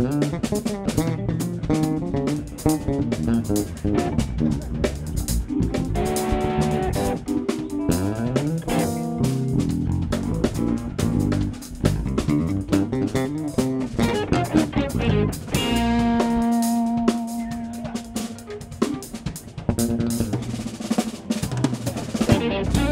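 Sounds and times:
electric bass runs: 0:00.0 - 0:07.2, 0:07.8 - 0:17.1, 0:22.3 - 0:22.9
drum kit beat: 0:00.0 - 0:22.9.

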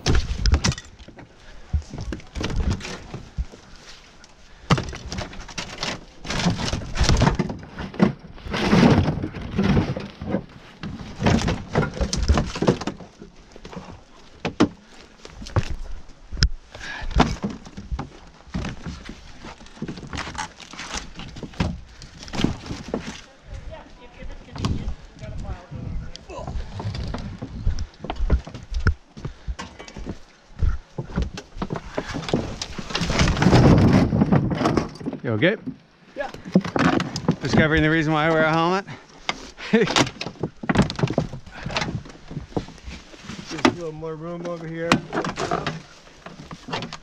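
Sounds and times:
panels cracking and breaking: 0:04.6 - 0:10.4, 0:11.0 - 0:13.1, 0:31.7 - 0:35.2, 0:39.6 - 0:42.7.

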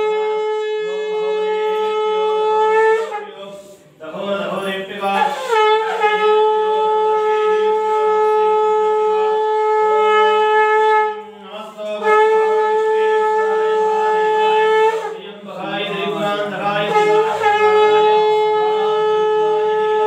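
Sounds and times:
conch shell blasts: 0:05.1 - 0:15.3, 0:16.9 - 0:20.0.

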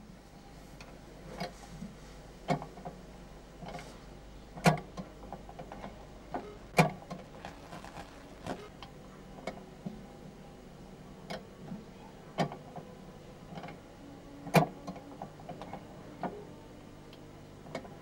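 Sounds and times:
faint low hum: 0:04.2 - 0:11.0.

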